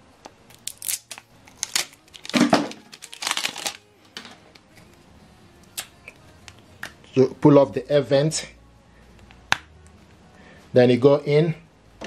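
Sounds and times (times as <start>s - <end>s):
scissors cutting plastic packaging: 0.5s - 3.8s
plastic packaging crinkling: 0.5s - 4.3s.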